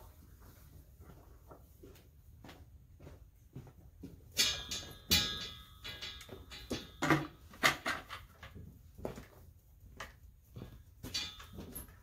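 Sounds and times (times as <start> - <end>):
metal knocks and clangs: 4.3 - 8.7, 10.6 - 12.0.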